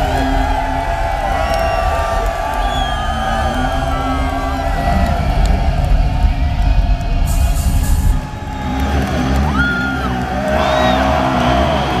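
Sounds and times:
heavy drums and bass: 0:00.0 - 0:09.5.

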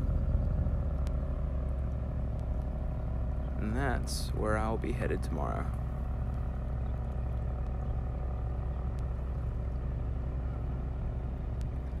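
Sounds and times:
engine humming steadily: 0:00.0 - 0:12.0.

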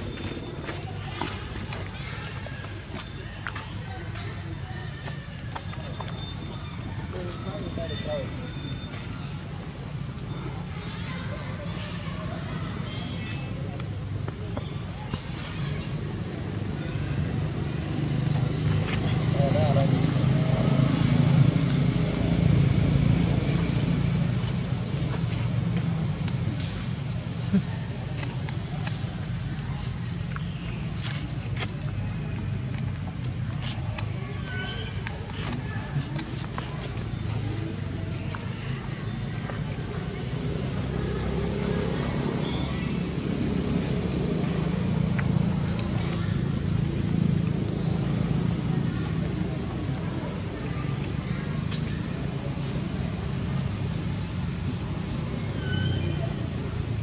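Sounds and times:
engine humming with hiss: 0:14.8 - 0:57.0.

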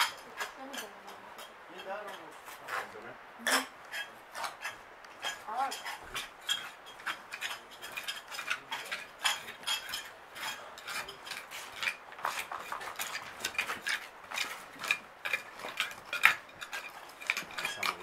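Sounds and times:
trowels scraping gritty soil: 0:01.7 - 0:18.0
metal clicking against stones: 0:03.9 - 0:18.0.

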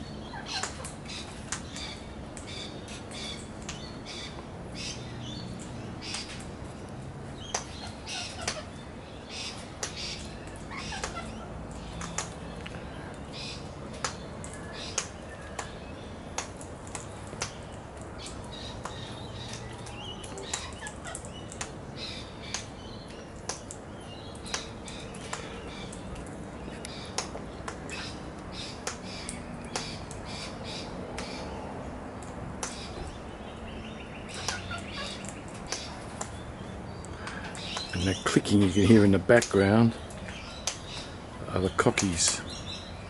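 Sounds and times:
cockatoos clicking: 0:09.3 - 0:12.8, 0:13.4 - 0:31.5, 0:34.2 - 0:36.4.

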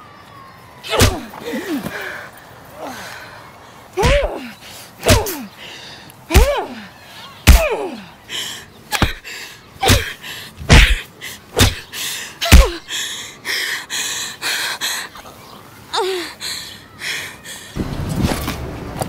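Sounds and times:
punch hits: 0:00.9 - 0:01.3, 0:07.5 - 0:07.8, 0:11.6 - 0:11.8, 0:12.5 - 0:12.8.

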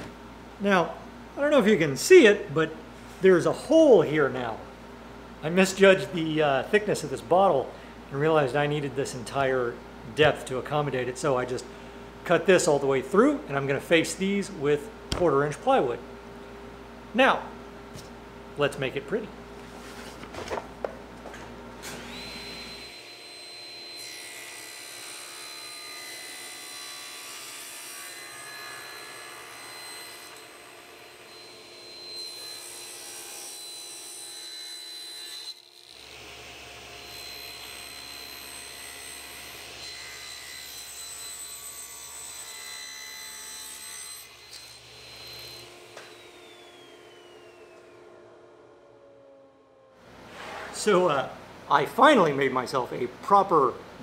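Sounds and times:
table saw whining: 0:21.8 - 0:51.0
saw blade spinning down: 0:44.4 - 0:50.0.

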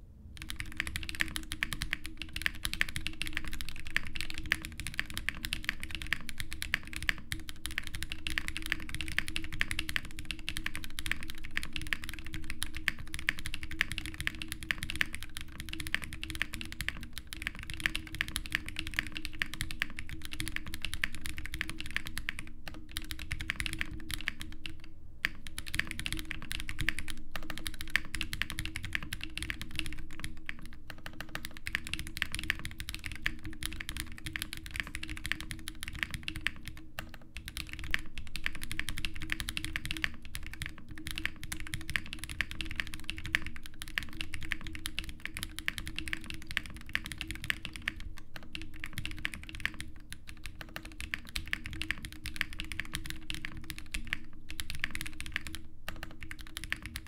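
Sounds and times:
fast mechanical keyboard typing: 0:00.4 - 0:57.0.

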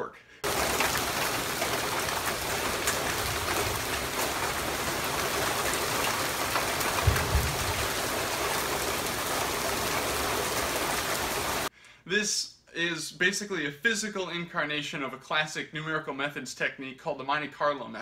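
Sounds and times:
raindrop taps: 0:00.4 - 0:11.7
steady rain: 0:00.4 - 0:11.7
low thump: 0:07.0 - 0:07.9.

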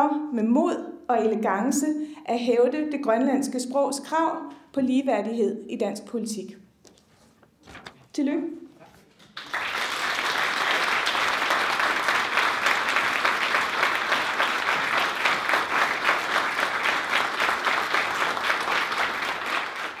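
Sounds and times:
audience applauding: 0:09.2 - 0:20.0.

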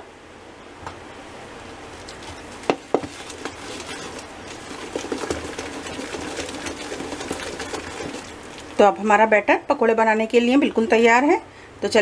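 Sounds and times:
spoon stirring thick batter: 0:02.0 - 0:09.1.

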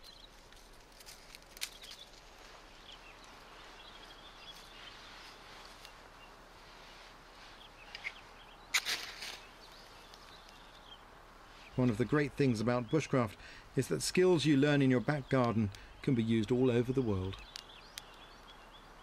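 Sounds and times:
short rustling or scraping: 0:06.6 - 0:09.6.

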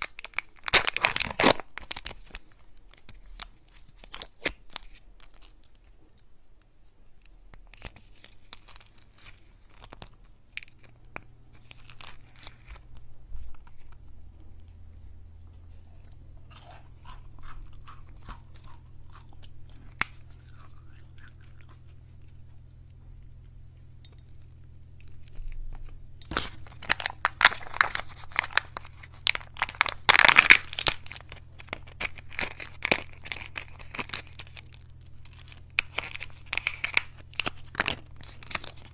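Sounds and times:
wrapper tearing: 0:00.0 - 0:05.9, 0:07.6 - 0:14.0, 0:25.4 - 0:38.9
packaging crinkling: 0:00.0 - 0:06.2, 0:07.2 - 0:14.8, 0:25.0 - 0:38.9.

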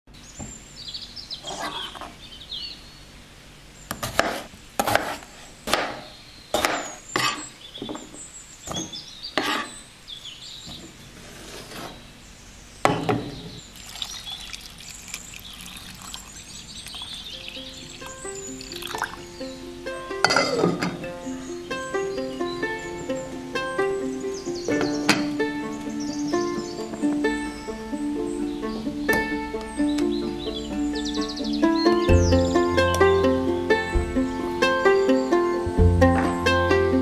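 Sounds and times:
knife chopping on plastic board: 0:03.9 - 0:06.0
water pouring into saucepan: 0:13.7 - 0:19.3.

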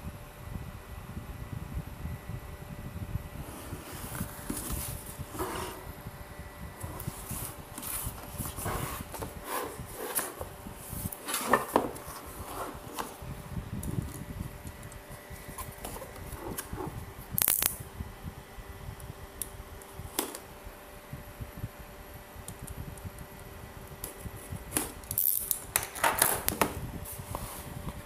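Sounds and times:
faint steady hum: 0:00.0 - 0:28.0
cardboard rubbing and tapping: 0:03.5 - 0:05.9, 0:06.8 - 0:13.2.

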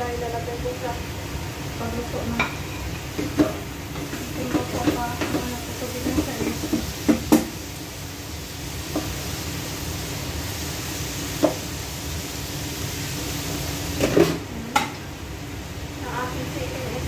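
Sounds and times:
range hood fan whirring: 0:00.0 - 0:17.0
metal cookware clinking: 0:02.3 - 0:07.4.

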